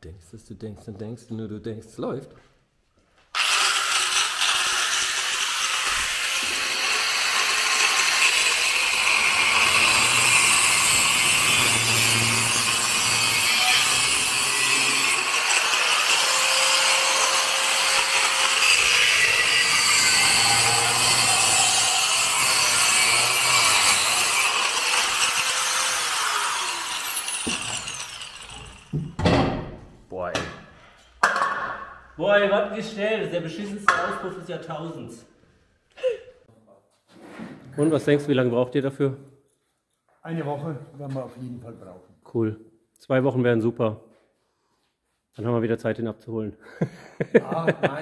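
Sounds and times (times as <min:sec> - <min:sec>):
angle grinder cutting metal: 0:03.4 - 0:29.0.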